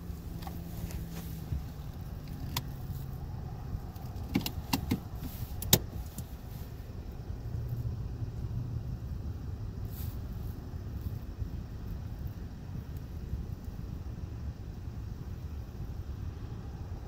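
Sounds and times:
car engine idling: 0.0 - 17.0
sharp clicks and knocks: 3.9 - 6.3.

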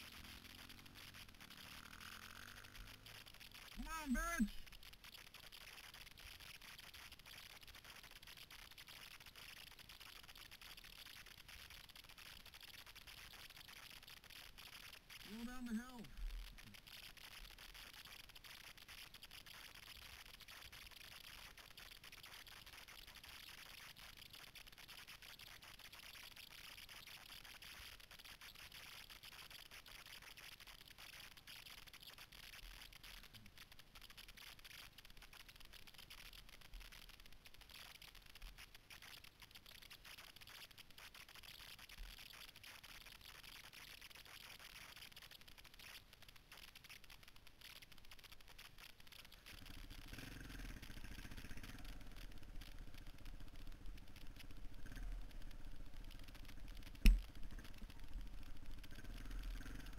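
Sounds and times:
faint hiss: 0.0 - 59.9
motorcycle engine running: 49.6 - 59.9.

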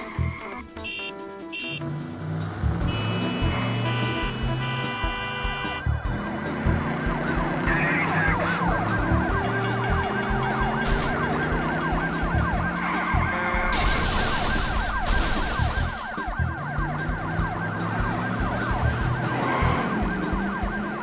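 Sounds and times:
music with low tones: 0.0 - 13.8, 15.6 - 21.0
police siren yelp: 2.9 - 21.0
burst of hissing noise: 13.7 - 15.8.

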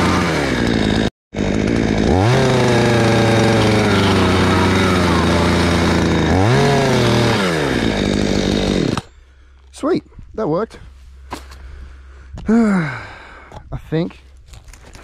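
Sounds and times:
chainsaw engine revving: 0.0 - 9.1.

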